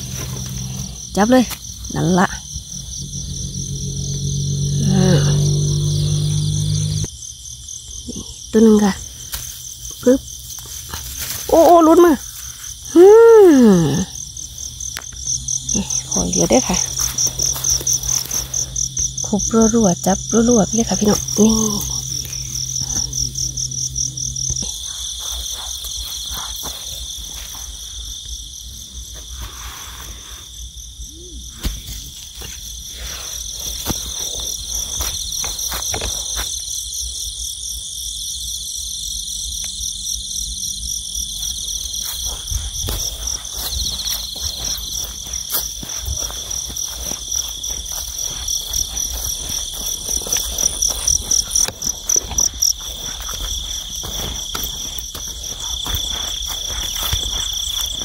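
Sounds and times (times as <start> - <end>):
crickets and insects trilling: 0.0 - 58.0
footsteps in dry straw: 9.3 - 12.8, 16.7 - 19.1, 21.0 - 23.6, 24.6 - 28.0, 41.4 - 58.0.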